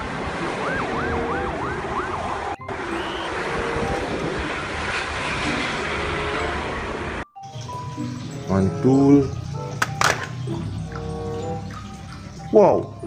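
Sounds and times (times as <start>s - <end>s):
police siren yelping: 0.0s - 6.5s
buses passing on highway: 0.0s - 13.0s.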